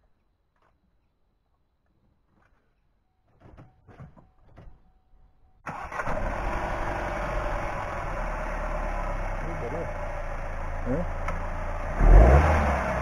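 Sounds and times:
car engine starting and running: 5.7s - 13.0s.

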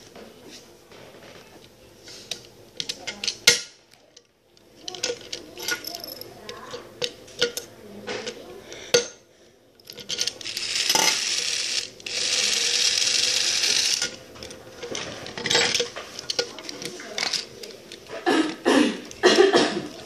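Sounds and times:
toy electric motor whirring: 10.0s - 17.5s.

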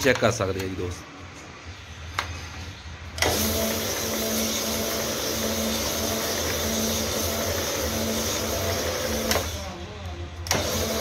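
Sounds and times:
polishing machine grinding hiss: 3.3s - 9.6s.

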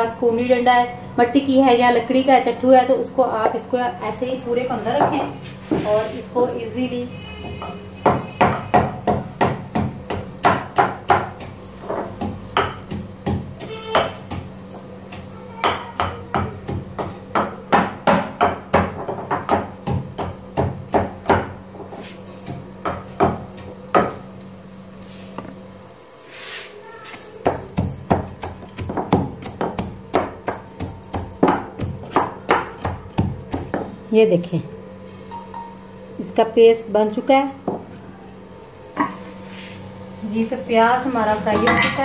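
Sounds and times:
pestle pounding in mortar: 7.6s - 21.8s, 22.4s - 24.2s, 27.4s - 34.0s.

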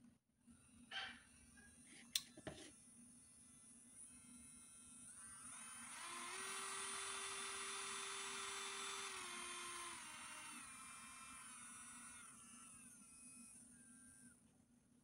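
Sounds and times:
nail drill motor whining: 3.5s - 14.5s.

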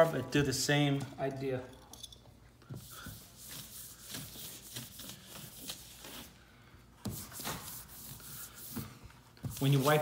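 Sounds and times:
wallpaper rustling against wall: 2.6s - 10.0s.

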